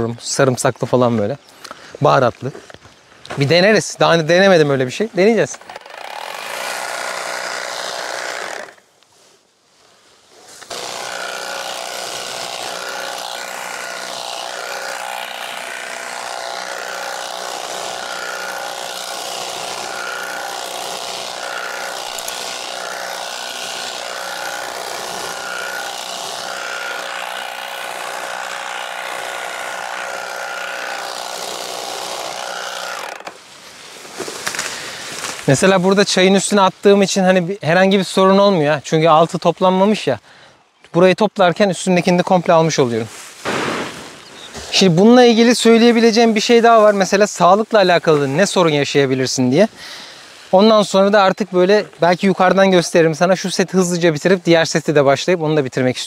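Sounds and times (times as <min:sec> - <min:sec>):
tea harvesting machine buzzing: 0:05.8 - 0:08.7, 0:10.7 - 0:33.4.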